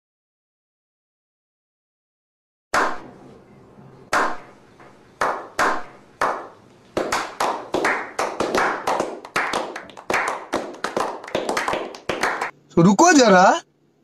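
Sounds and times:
group clapping: 4.1s - 4.5s, 5.2s - 12.6s
slow hand claps: 4.1s - 12.6s.

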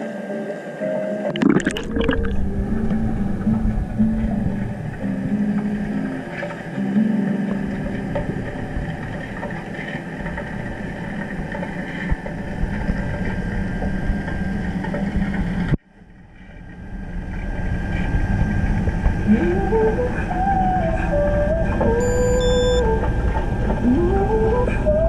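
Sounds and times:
underwater mechanical hum: 0.0s - 25.0s
rising wavering tone: 19.2s - 25.0s.

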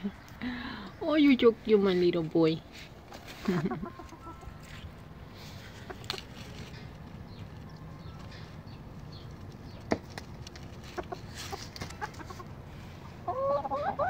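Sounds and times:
chickens clucking: 3.0s - 14.0s
warbling chicken calls: 3.2s - 4.8s, 10.8s - 14.0s.

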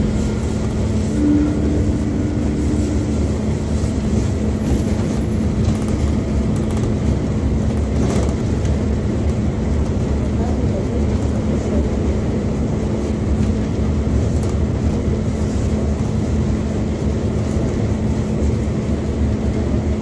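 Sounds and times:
bus engine drone: 0.0s - 20.0s
road rumble: 0.0s - 20.0s
short high whine: 0.9s - 3.7s.

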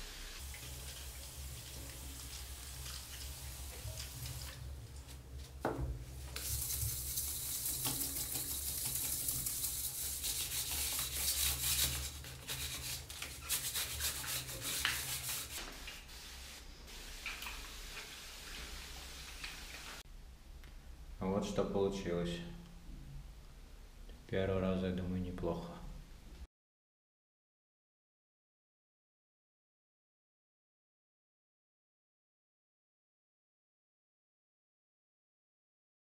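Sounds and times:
hand float scraping plaster: 6.4s - 16.1s.

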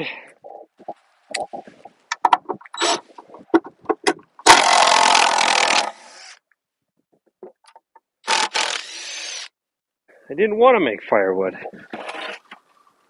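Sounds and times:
handling clicks and knocks: 0.8s - 4.5s
cordless drill running: 8.2s - 9.5s.

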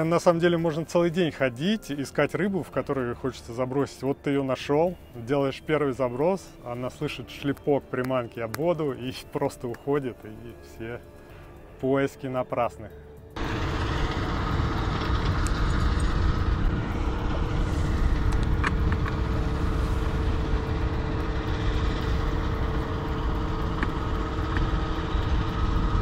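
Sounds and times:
engine drone: 12.9s - 26.0s.

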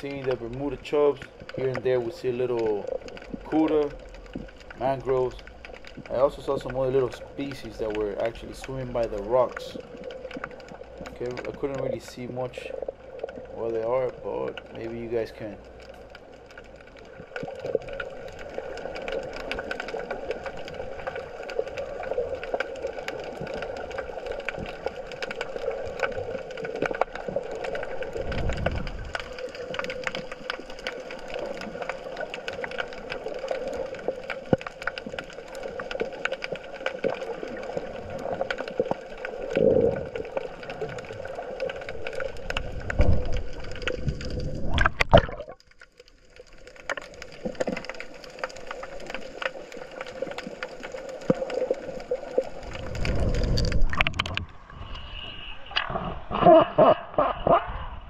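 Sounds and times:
underwater crackle of clicks: 0.0s - 56.4s
constant underwater hum: 0.0s - 58.0s
low surges of moving water: 0.0s - 58.0s.

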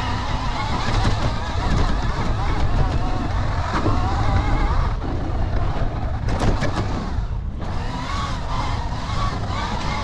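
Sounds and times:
electric motor whine: 0.0s - 10.0s
wind rumble on microphone: 0.0s - 10.0s
knocks from bumps: 0.4s - 4.1s, 6.3s - 7.8s.

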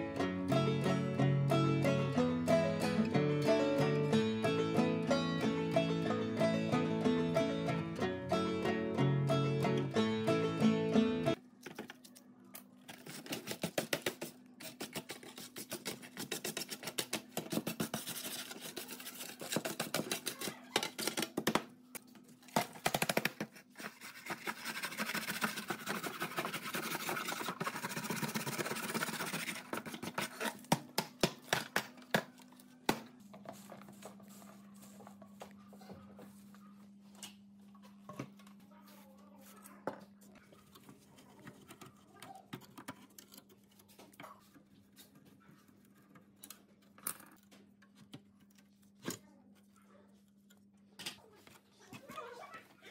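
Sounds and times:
wire brush scrubbing rusty metal: 23.8s - 30.4s.

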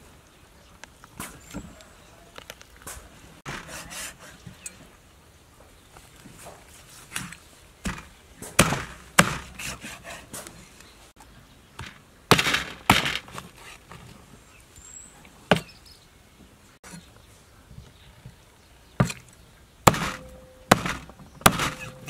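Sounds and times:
cleaver chopping on wooden board: 7.8s - 10.0s, 19.0s - 19.2s, 19.9s - 22.0s.

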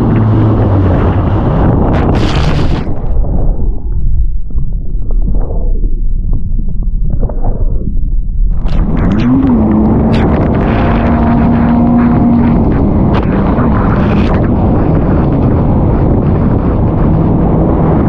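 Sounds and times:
jet ski engine running: 0.0s - 3.2s, 8.6s - 18.0s
wind buffeting: 0.0s - 18.0s
water spray rushing: 2.0s - 3.0s.

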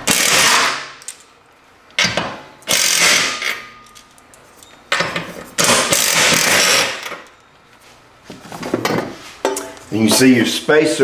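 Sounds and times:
impact driver whirring: 2.7s - 3.4s, 5.6s - 7.1s.

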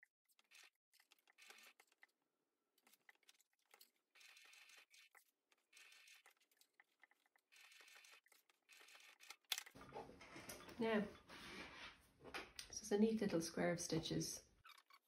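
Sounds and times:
sewing machine stitching: 4.1s - 5.1s, 7.5s - 9.6s.

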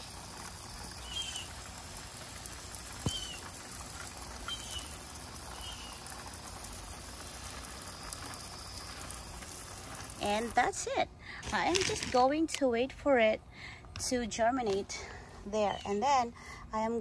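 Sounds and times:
hose spray pattering on soil: 0.0s - 12.7s
bird chirps: 1.0s - 1.5s, 3.0s - 3.4s, 4.5s - 6.0s.

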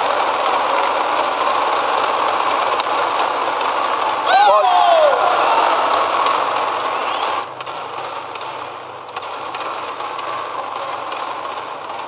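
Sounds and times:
crowd cheering: 0.0s - 8.5s
low hall background: 0.0s - 12.0s
rackets striking shuttlecock: 5.0s - 12.0s.

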